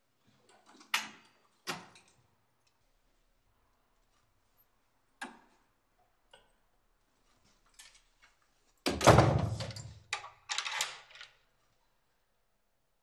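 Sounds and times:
heavy door thud: 8.9 - 9.9
door lock clicking and rattling: 9.0 - 11.4.

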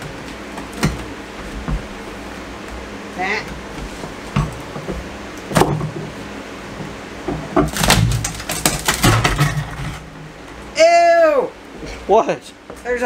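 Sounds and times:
plywood cracking and creaking: 7.6 - 10.1.

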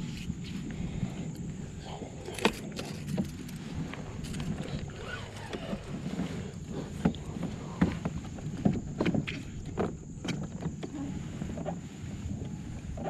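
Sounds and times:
low rumble of kayak hull: 0.0 - 13.0
gear clicks and knocks: 2.2 - 11.0.

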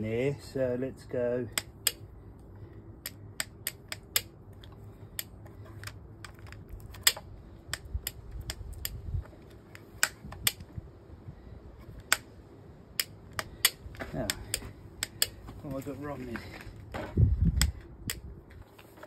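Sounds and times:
chainsaw controls clicking: 3.0 - 9.0, 13.0 - 15.4.

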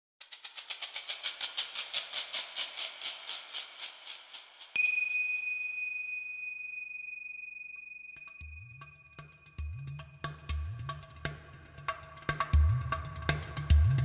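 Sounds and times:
fast run of ticks: 0.2 - 4.8
bright bell-like ding: 4.8 - 9.6.

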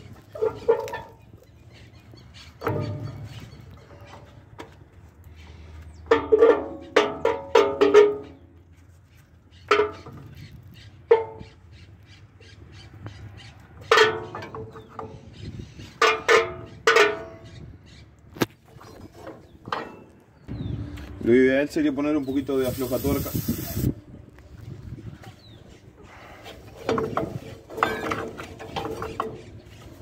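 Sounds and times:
metal rod clanking on brake shoes: 0.1 - 1.4, 2.6 - 4.8, 6.0 - 8.5, 9.6 - 10.4, 11.0 - 11.6, 13.8 - 17.6, 18.9 - 20.2, 26.5 - 30.0.

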